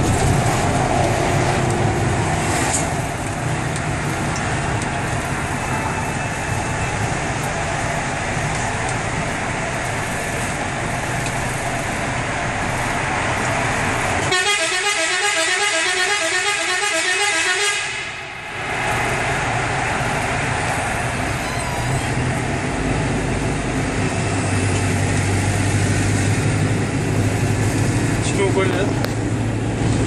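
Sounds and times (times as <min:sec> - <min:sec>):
bus running from inside: 0:00.0 - 0:30.0
warbling bus air horn: 0:14.3 - 0:18.3.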